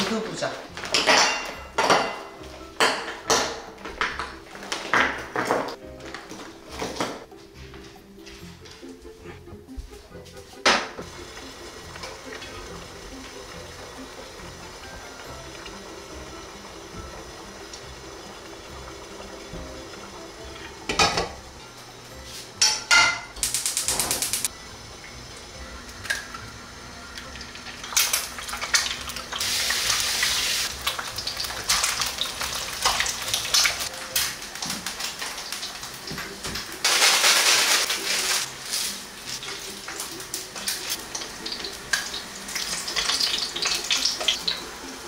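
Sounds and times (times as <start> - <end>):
pots and utensils handled: 0.1 - 8.8, 20.5 - 21.4, 22.3 - 24.5
dumplings frying: 10.6 - 45.0
rapid clicking: 23.4 - 24.5
packets rustling: 36.8 - 38.9.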